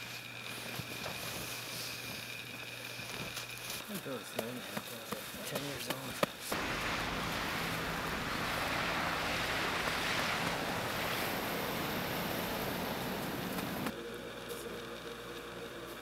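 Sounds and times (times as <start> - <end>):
rushing wind: 6.5 - 13.9.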